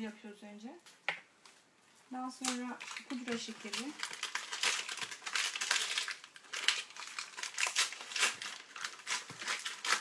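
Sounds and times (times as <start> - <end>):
paper packet crinkling: 2.2 - 10.0.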